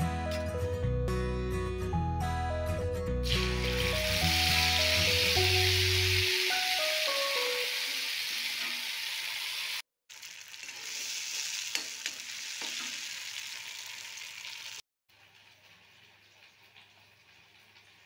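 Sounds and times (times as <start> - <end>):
paste sizzling in hot oil: 3.3 - 14.8.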